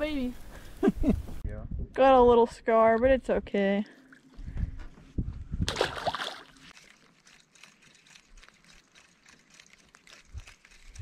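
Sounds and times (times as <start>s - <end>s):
fish splashing into water: 5.7s - 6.6s.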